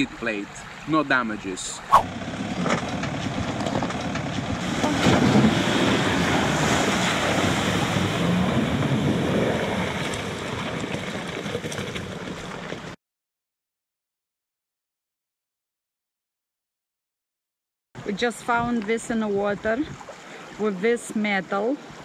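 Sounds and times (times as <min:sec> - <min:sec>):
water splashing around wheels: 0:02.0 - 0:13.0.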